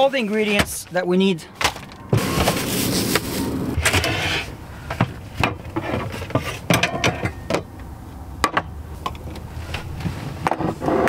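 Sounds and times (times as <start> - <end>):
rummaging in kitchen cabinet: 1.6 - 7.7.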